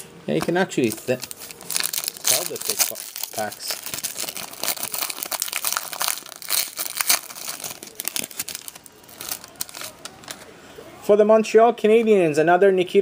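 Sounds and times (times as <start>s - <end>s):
foil wrapper crinkling and tearing: 0.8s - 10.5s.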